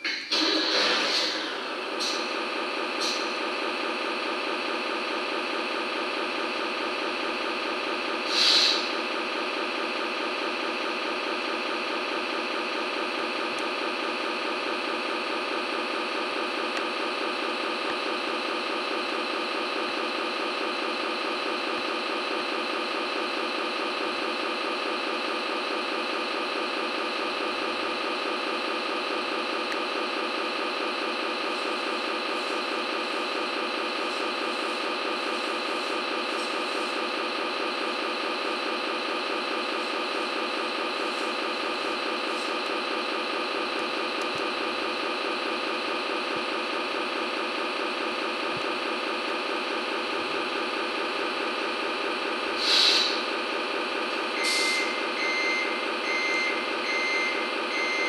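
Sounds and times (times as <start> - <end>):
diesel engine idling through speaker: 0.0 - 58.0
short hiss: 8.3 - 8.8, 52.6 - 53.1.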